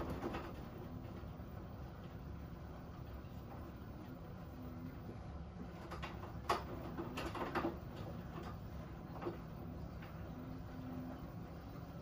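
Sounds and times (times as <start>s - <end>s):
washing machine drum humming: 0.0s - 12.0s.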